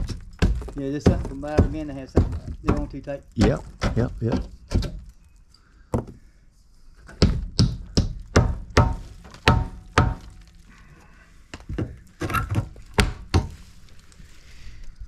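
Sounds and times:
hammer striking wood: 7.1 - 10.3, 13.0 - 13.6.

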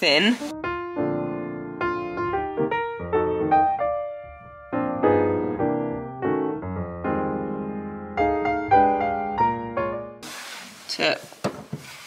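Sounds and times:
piano chords: 0.0 - 10.2.

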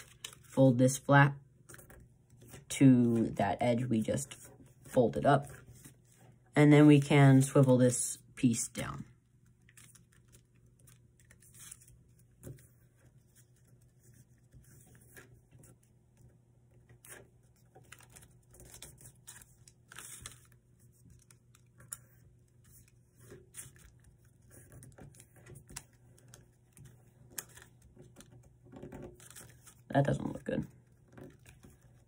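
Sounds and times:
paper rustling and crinkling: 0.0 - 0.6, 9.6 - 15.9, 16.8 - 32.0.

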